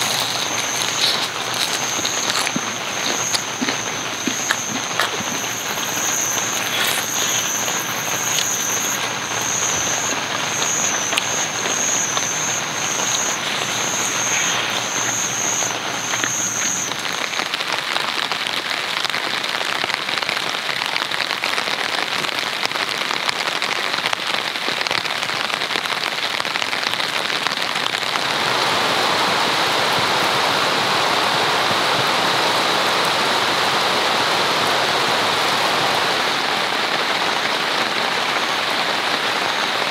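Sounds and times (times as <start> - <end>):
high-pitched pulsing call: 0.0 - 17.4
heavy rain on a tent: 0.0 - 39.9.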